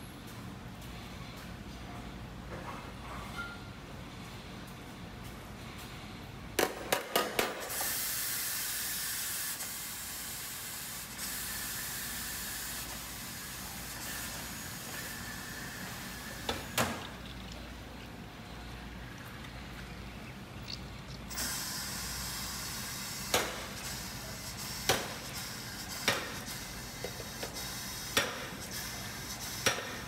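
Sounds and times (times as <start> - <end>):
loud steady hiss: 7.4 - 17.0, 21.3 - 30.0.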